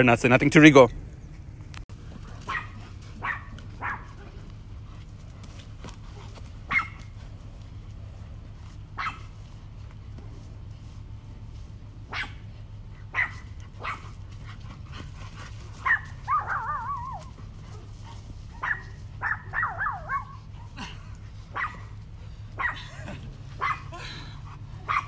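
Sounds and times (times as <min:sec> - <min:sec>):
dog barking: 0:02.4 - 0:04.4, 0:06.7 - 0:07.1, 0:09.0 - 0:09.3, 0:12.1 - 0:12.4, 0:13.1 - 0:14.1, 0:15.8 - 0:17.9, 0:18.5 - 0:20.8, 0:21.5 - 0:22.0, 0:22.6 - 0:22.9, 0:23.6 - 0:24.0, 0:24.8 - 0:25.0
dog whiny yelps: 0:02.5 - 0:04.3, 0:12.1 - 0:12.4, 0:13.0 - 0:14.2, 0:15.8 - 0:17.8, 0:18.5 - 0:20.8, 0:21.5 - 0:21.9, 0:22.6 - 0:24.1, 0:24.7 - 0:25.0.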